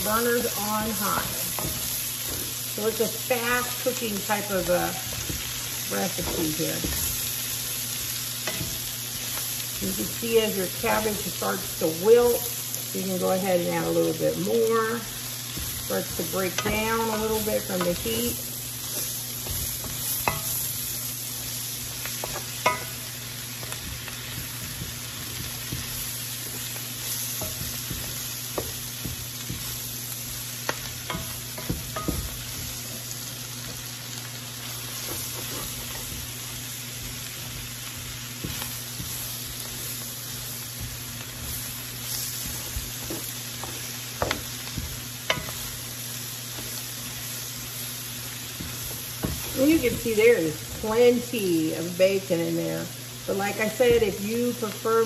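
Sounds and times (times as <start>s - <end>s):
wooden spoon scraping a pan: 0.0s - 33.9s, 34.6s - 51.7s
cabbage sizzling in a skillet: 0.0s - 55.0s
spoon knocking against pan: 22.2s - 23.1s, 30.7s - 32.6s.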